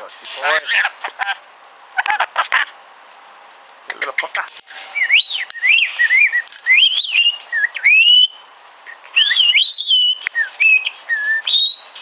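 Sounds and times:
lorikeet whistling and chirping: 4.9 - 12.0.

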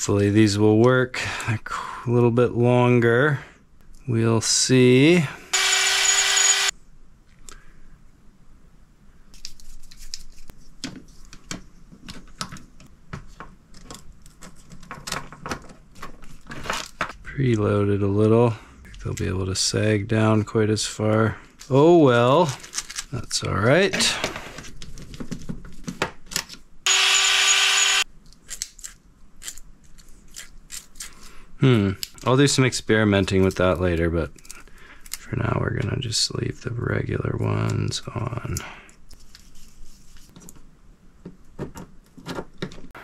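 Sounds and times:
small power tool motor whirring: 5.5 - 6.7, 26.9 - 28.0.

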